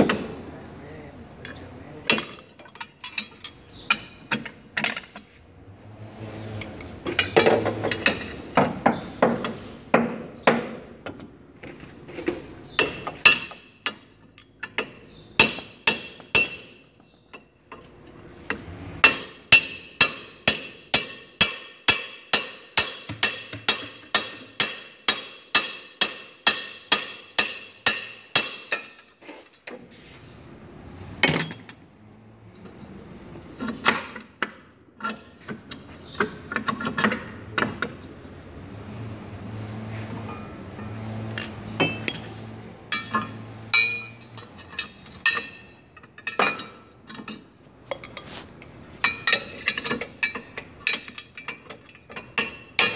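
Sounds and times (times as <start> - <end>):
hammer striking steel: 14.8 - 16.8, 19.0 - 29.0, 41.3 - 44.2.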